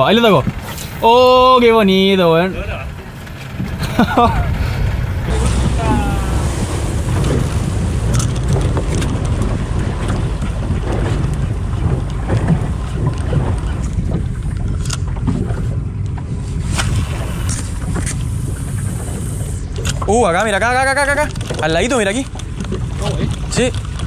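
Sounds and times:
water sloshing against boat hull: 0:00.0 - 0:24.0
wind rumble on microphone: 0:00.0 - 0:24.0
handling clicks and knocks: 0:21.3 - 0:24.0.

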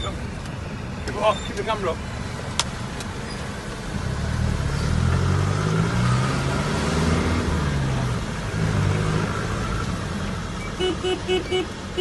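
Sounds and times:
vehicle engine accelerating: 0:03.7 - 0:10.6.

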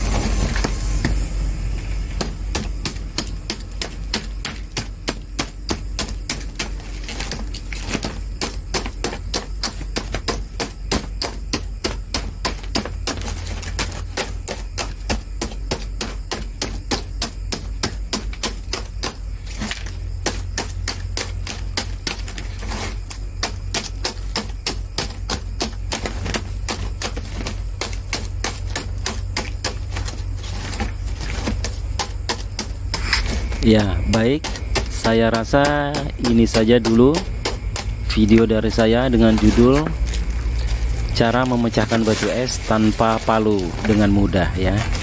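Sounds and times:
ice cracking: 0:37.2 - 0:45.0.

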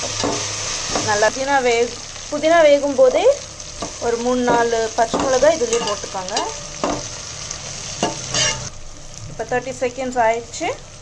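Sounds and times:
oil sizzling: 0:00.0 - 0:11.0
metal spatula scraping pot: 0:04.5 - 0:07.0, 0:08.0 - 0:08.7.

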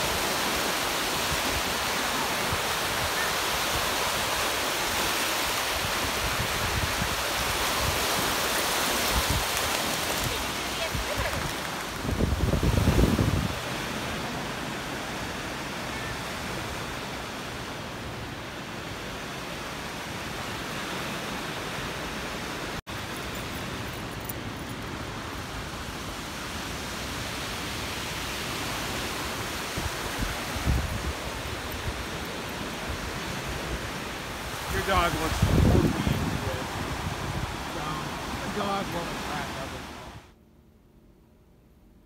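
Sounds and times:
wind noise on microphone: 0:02.5 - 0:13.8, 0:29.4 - 0:32.2, 0:33.1 - 0:37.7
low wind buffeting: 0:09.0 - 0:13.9, 0:29.6 - 0:38.5.

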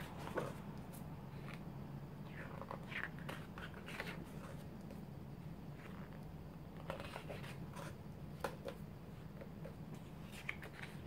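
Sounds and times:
low steady hum: 0:00.0 - 0:11.0
pages turning: 0:02.4 - 0:04.7, 0:05.8 - 0:08.0, 0:10.0 - 0:11.0.

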